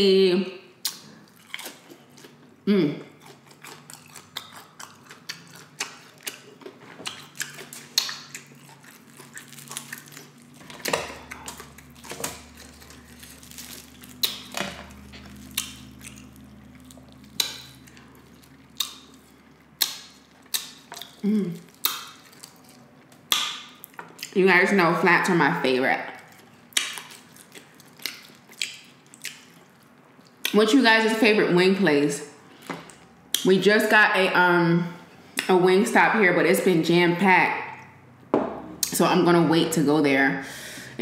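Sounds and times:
crunching fried chicken: 0.9 - 2.4, 3.1 - 24.4, 26.1 - 30.5.

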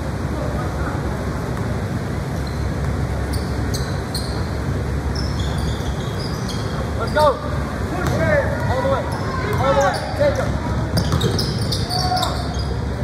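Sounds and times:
court and crowd rumble: 0.0 - 13.0
sneaker squeaks on hardwood: 2.4 - 7.4, 8.0 - 12.9.

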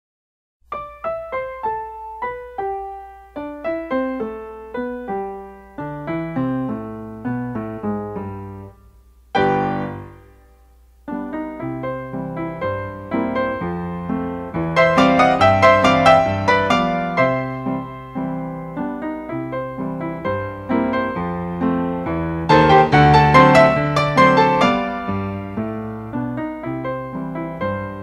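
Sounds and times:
solo piano music: 0.6 - 28.0.

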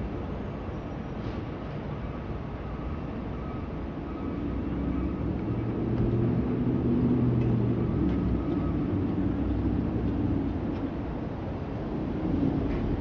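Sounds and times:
low traffic noise: 1.2 - 13.0
vehicle engine hum: 3.8 - 13.0.

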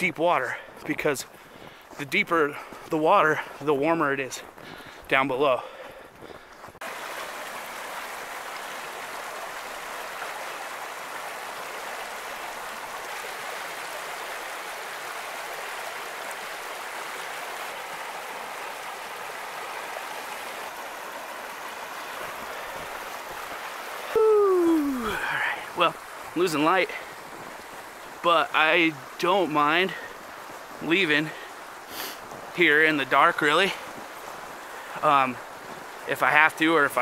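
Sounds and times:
river flowing over rocks: 6.8 - 37.0.

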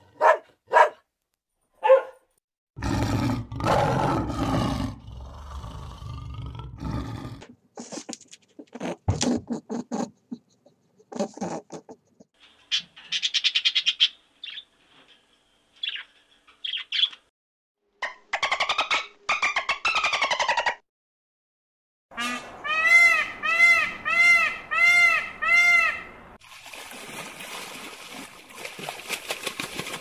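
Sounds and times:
big cat growling and roaring: 2.8 - 7.5.

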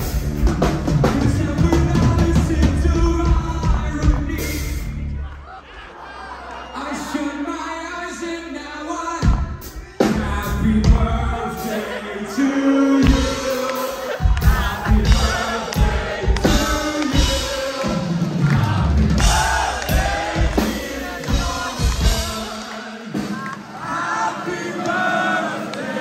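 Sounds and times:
person singing: 0.0 - 4.9, 7.0 - 26.0
metal band playing live: 0.0 - 5.1, 13.0 - 23.4
heavy drums: 0.0 - 5.2, 9.1 - 26.0.

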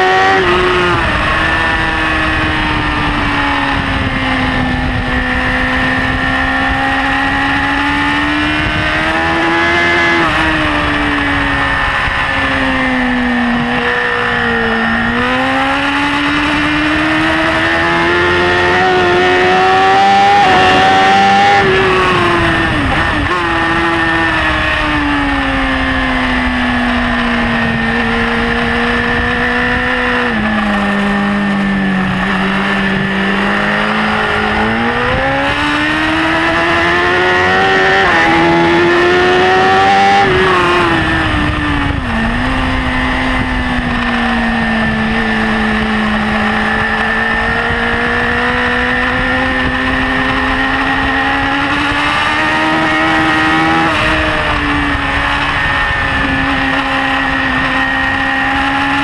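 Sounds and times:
motorcycle engine revving: 0.0 - 59.0
wind rush: 0.0 - 59.0.

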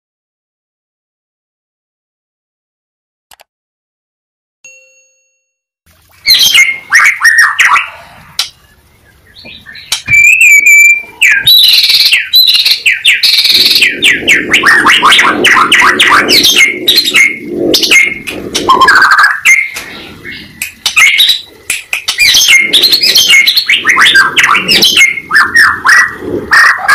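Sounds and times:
songbird singing whistles and chatter: 6.2 - 26.9.

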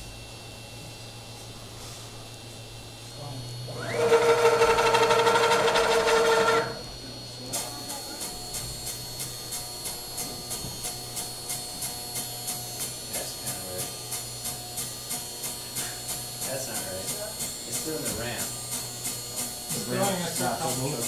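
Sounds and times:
stepper motors whining: 3.7 - 7.1.

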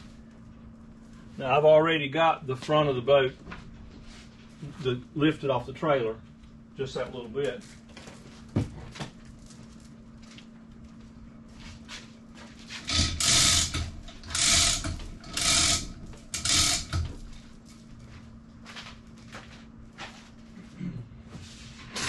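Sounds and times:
chain hoist ratcheting clatter: 12.8 - 17.3.

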